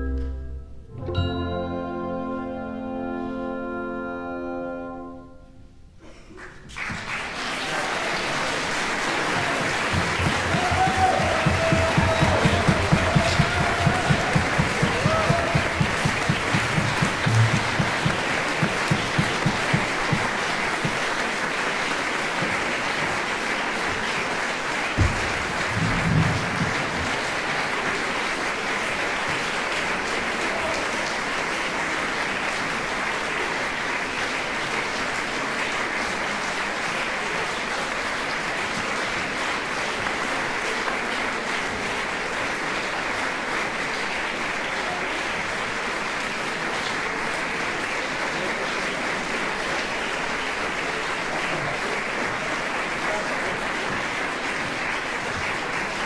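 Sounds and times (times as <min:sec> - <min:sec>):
audience applauding: 0:06.3 - 0:56.0
low rhythmic thumps: 0:09.4 - 0:21.2, 0:25.0 - 0:27.4.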